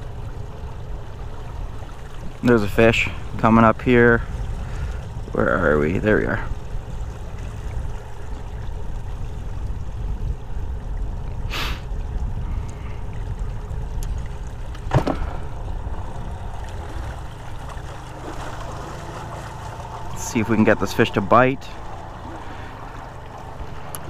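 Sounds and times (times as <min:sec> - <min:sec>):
low rumble of water and air: 0:00.0 - 0:24.0
short hiss: 0:11.5 - 0:11.8
sharp knock on boat: 0:14.9 - 0:15.4.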